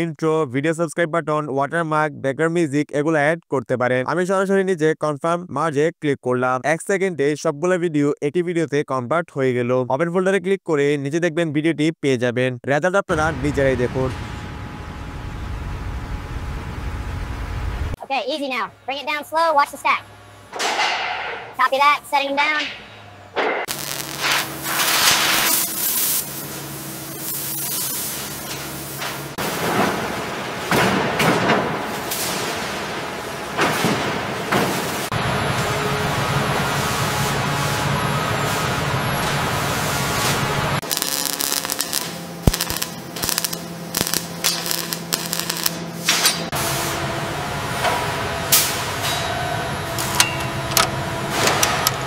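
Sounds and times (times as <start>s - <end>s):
low machine hum: 13.1s - 18.0s, 18.6s - 22.1s, 34.5s - 52.0s
hissing spray of cutting sparks: 23.7s - 29.6s, 39.8s - 47.0s.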